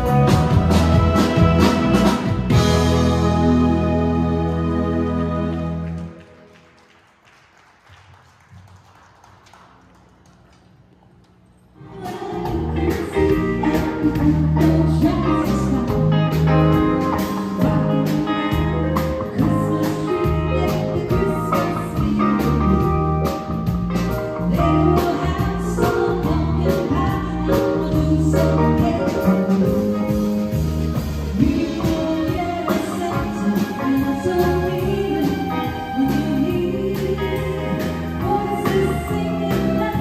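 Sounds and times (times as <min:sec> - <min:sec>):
bass line: 0:00.0 - 0:06.1, 0:12.0 - 0:40.0
live band with singer: 0:00.0 - 0:06.2, 0:11.8 - 0:40.0.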